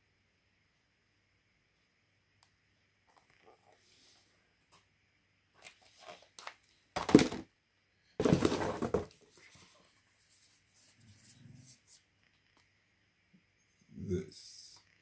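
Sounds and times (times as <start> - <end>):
rustling: 8.2 - 12.6.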